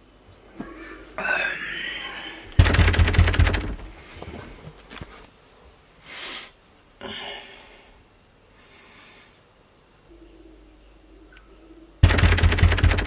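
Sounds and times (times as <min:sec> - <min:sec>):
man breathing and sniffing: 0:03.8 - 0:04.8, 0:06.0 - 0:09.4.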